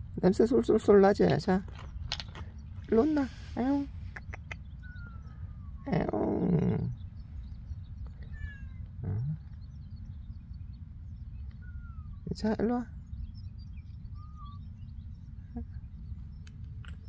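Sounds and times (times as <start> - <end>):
kitten meowing: 8.2 - 9.2, 11.6 - 12.2.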